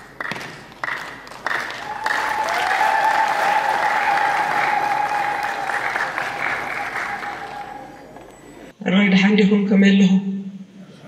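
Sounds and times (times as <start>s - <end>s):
audience applauding: 0.8s - 8.2s.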